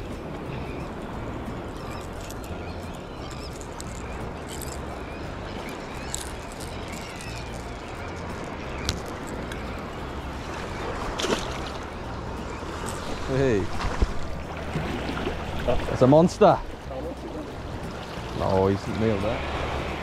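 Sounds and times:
wind on microphone: 0.0s - 16.0s
sea water lapping on rocks: 10.4s - 12.0s.

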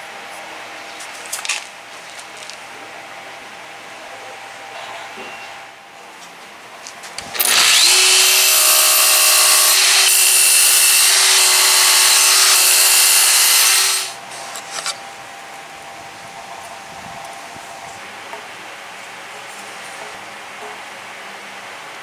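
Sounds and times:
miter saw cutting wood: 7.3s - 15.0s.

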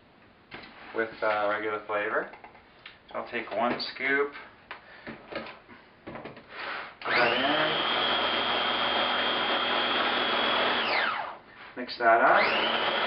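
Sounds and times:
blender motor whine: 6.6s - 11.4s, 12.3s - 13.0s.

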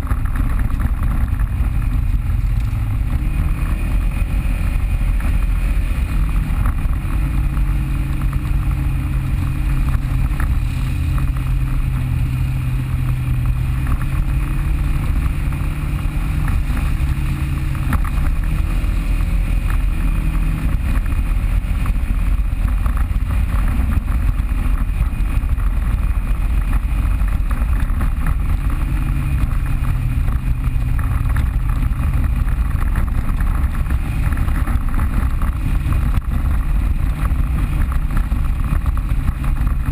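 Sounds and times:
constant rushing hiss: 0.0s - 39.9s
off-road vehicle engine running: 0.0s - 39.9s.

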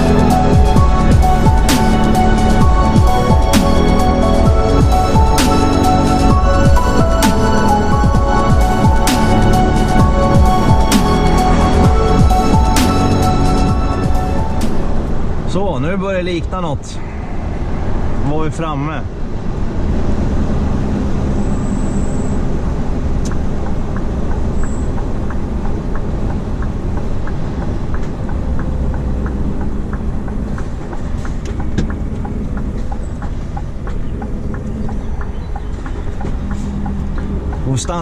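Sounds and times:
turn signal ticking: 0.0s - 15.5s, 21.3s - 38.0s
diesel truck engine running: 0.0s - 38.0s.

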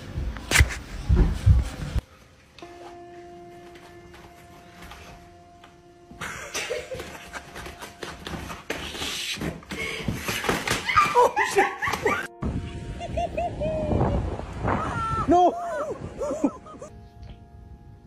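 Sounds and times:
background music: 2.6s - 9.3s, 10.9s - 18.0s
person laughing: 6.2s - 7.9s, 10.9s - 12.3s, 12.9s - 16.9s.

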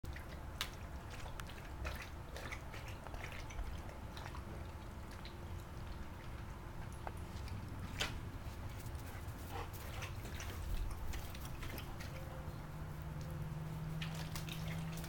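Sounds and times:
dog lapping water: 0.1s - 15.0s
small splashes and drips: 0.1s - 15.0s.

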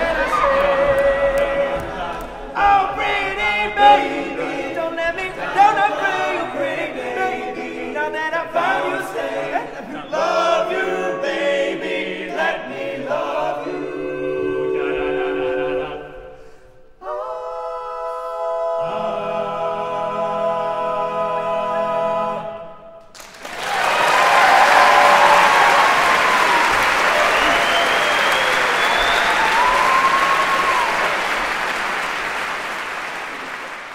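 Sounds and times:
male group singing a cappella: 0.0s - 16.4s, 17.0s - 22.8s
audience applause: 23.1s - 33.9s.

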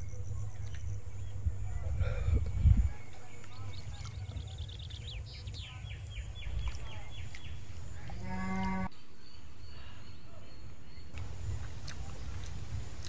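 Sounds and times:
steady low rumble: 0.0s - 8.2s, 8.9s - 13.0s
small birds chirping: 0.0s - 13.0s
cow mooing: 8.0s - 8.9s.

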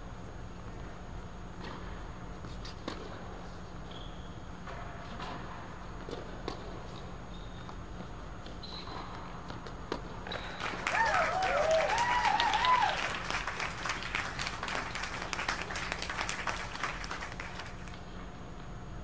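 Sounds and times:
spectators clapping: 10.2s - 18.2s
person cheering: 10.7s - 16.4s.

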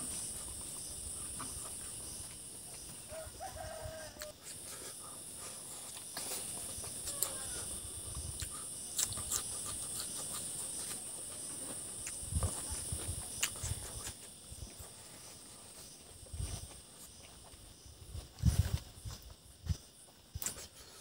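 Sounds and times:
high insect drone: 0.0s - 21.0s
person chewing food: 8.3s - 14.4s.

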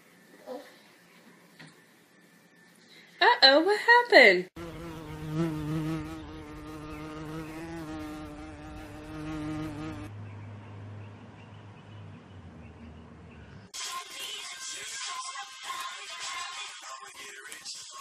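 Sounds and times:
flying insect buzzing: 4.6s - 10.1s.

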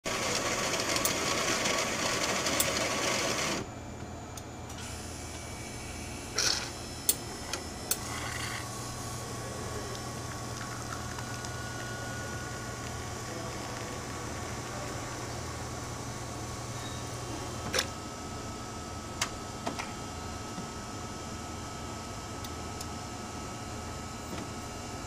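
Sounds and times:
coffee grinder running: 0.1s - 3.6s, 6.3s - 6.8s, 7.9s - 16.2s
pump humming: 4.7s - 22.3s
espresso pouring: 8.0s - 16.2s.

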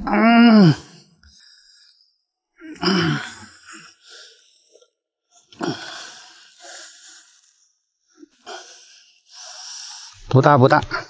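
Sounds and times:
heavy strained breaths: 0.0s - 10.3s.

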